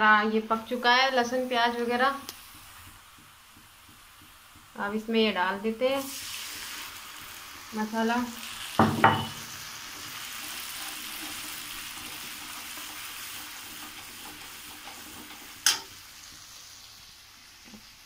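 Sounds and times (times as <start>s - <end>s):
masala sizzling in oil: 0.0s - 18.0s
ladle knocking against pan: 8.8s - 9.4s.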